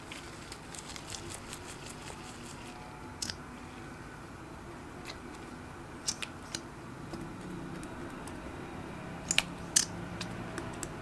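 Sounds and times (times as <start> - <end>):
low background hum: 0.0 - 11.0.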